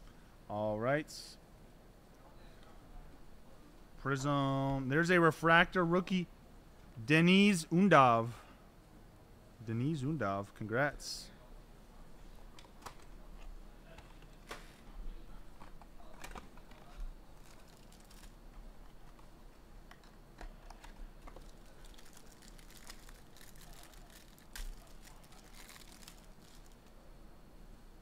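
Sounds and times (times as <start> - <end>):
cardboard and plastic clicks and rustles: 15.6 - 19.3, 19.9 - 26.9
plastic wrapper crinkling: 16.1 - 19.2, 20.7 - 26.9.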